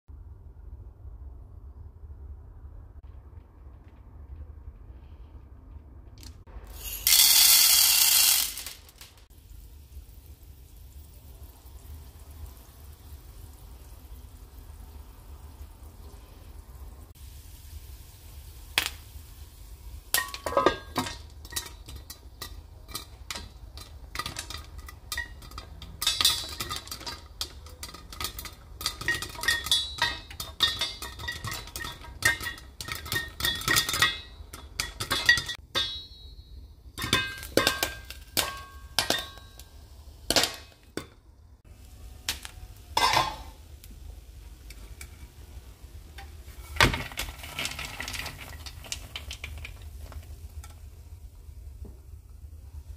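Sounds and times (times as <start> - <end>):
popcorn popping under metal lid: 6.7 - 9.2, 18.7 - 19.2, 20.1 - 39.7, 42.3 - 43.6, 46.0 - 51.4.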